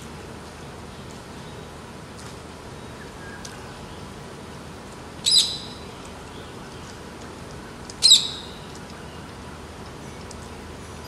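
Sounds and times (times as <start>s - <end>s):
parakeet high-pitched calls: 5.2s - 5.8s, 8.0s - 8.6s.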